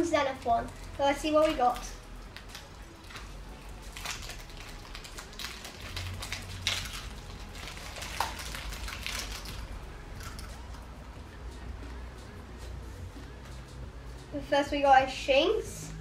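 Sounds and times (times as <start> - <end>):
foil wrapper crinkling and tearing: 0.4 - 10.6.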